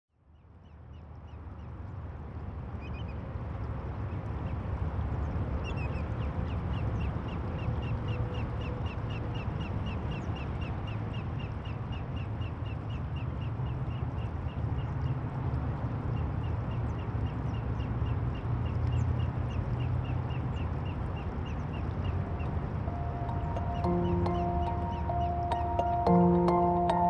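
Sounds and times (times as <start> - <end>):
bird chirping: 21.5 - 27.0.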